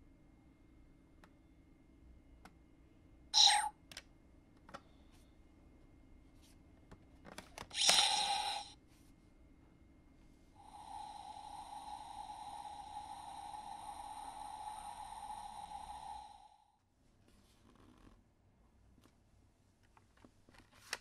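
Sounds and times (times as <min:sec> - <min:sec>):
electronic sound effect: 0:07.8 - 0:08.7
steady electronic tone: 0:10.6 - 0:16.6.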